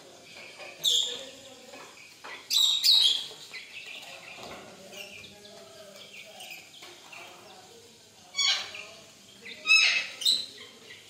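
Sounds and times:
high bird chirps: 0.3 - 5.3.

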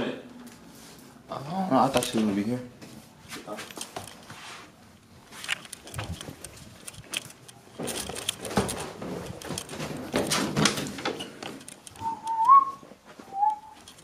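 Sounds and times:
short whistled notes: 12.0 - 13.8.

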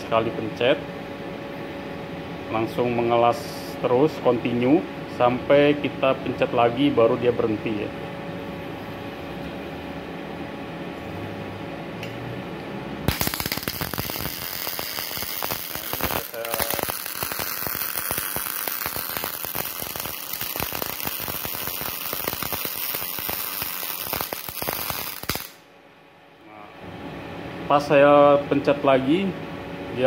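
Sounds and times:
welding arc crackling: 13.0 - 25.6.

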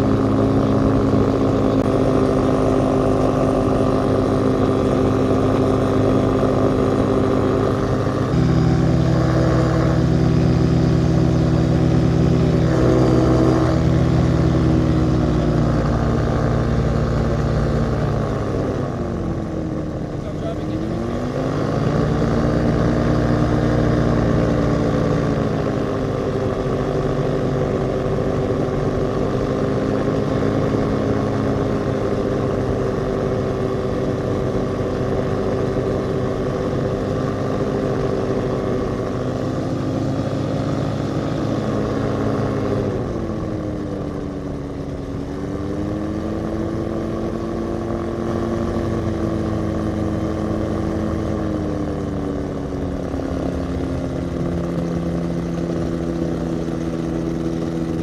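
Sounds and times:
ultralight engine and propeller: 0.0 - 58.0.

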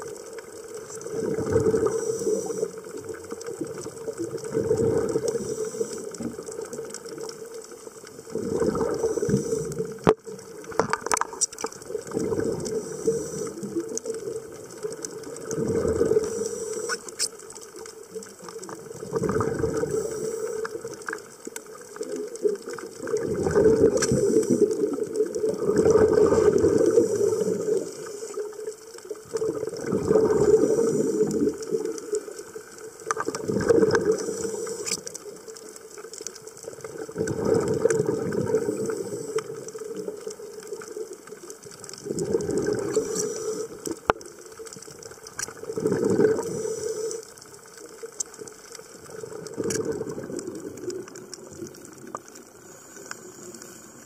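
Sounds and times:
exhaled bubbles rumbling: 0.0 - 53.7
diver regulator breathing: 1.0 - 3.4, 4.5 - 7.3, 8.2 - 11.2, 12.0 - 17.9, 18.6 - 21.2, 22.6 - 35.8, 37.2 - 40.3, 42.1 - 44.3, 45.8 - 47.9, 52.4 - 54.0.

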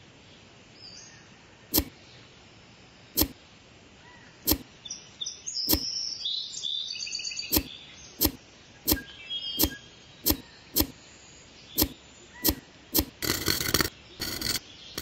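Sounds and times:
birds chirping: 0.2 - 13.0
sharp clicks: 1.7 - 1.9, 3.2 - 3.4, 4.5 - 4.7, 5.7 - 5.9, 7.5 - 11.0, 11.8 - 15.0.

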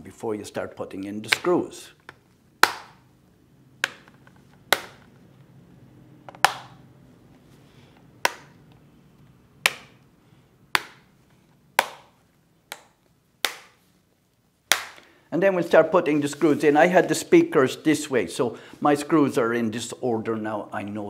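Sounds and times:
plastic clips snapping into place: 3.8 - 5.2, 6.3 - 6.8, 8.2 - 8.8, 9.6 - 10.1, 10.7 - 11.1.

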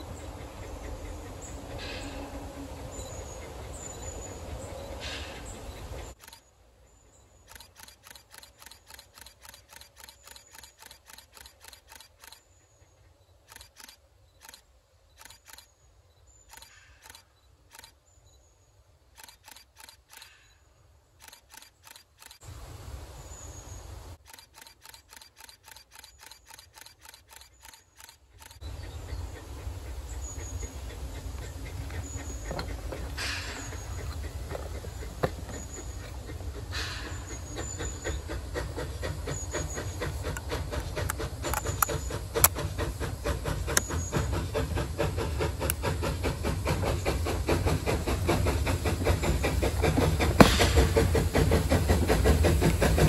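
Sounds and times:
faint bird chirps: 2.9 - 22.4
camera shutter clicking: 7.5 - 12.4, 13.5 - 14.6, 15.2 - 15.7, 19.2 - 20.4, 21.2 - 22.4, 24.2 - 28.6.

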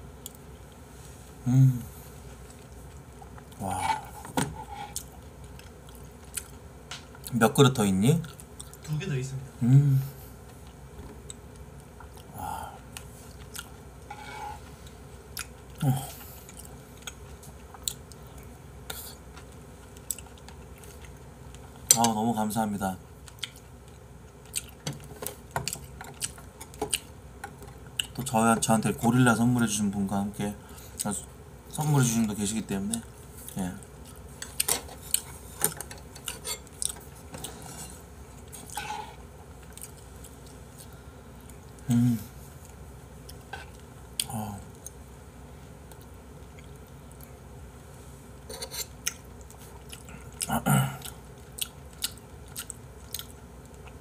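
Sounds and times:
chewing and mouth sounds: 4.8 - 7.3, 8.2 - 8.8, 11.2 - 13.8, 15.3 - 21.7, 23.2 - 27.2, 27.8 - 28.3, 39.4 - 41.9, 48.8 - 54.0
eating sounds: 10.2 - 13.9, 36.1 - 45.0, 48.5 - 54.0
metal spoon scraping a bowl: 48.5 - 48.9.

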